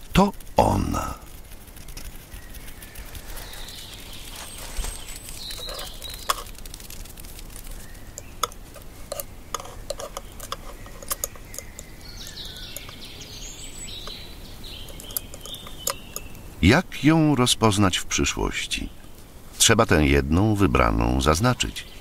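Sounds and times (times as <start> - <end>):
sharp clicks and ticks: 0.0 - 4.4, 5.0 - 13.0, 14.8 - 16.4
birds chirping: 0.0 - 22.0.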